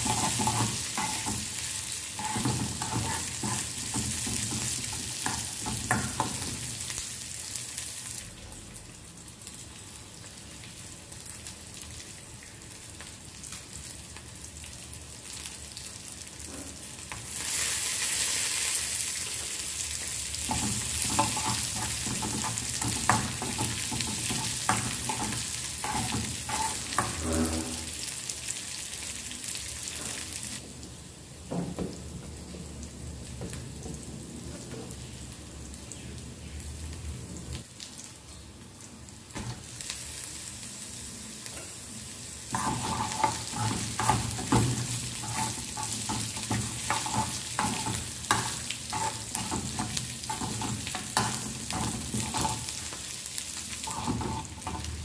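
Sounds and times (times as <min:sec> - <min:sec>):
spoon stirring and knocking pan: 0:00.0 - 0:01.6, 0:02.2 - 0:06.6, 0:20.4 - 0:27.3, 0:42.5 - 0:52.8, 0:53.8 - 0:55.0
food sizzling in a pan: 0:00.0 - 0:55.0.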